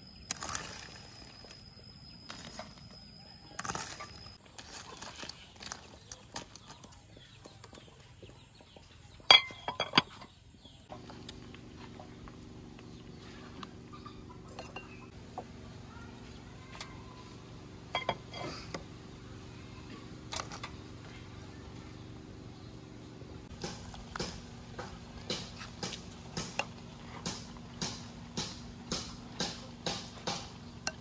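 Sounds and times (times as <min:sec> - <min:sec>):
steady low hum: 0:00.0 - 0:31.0
crockery clinking: 0:09.3 - 0:10.3, 0:17.9 - 0:18.5.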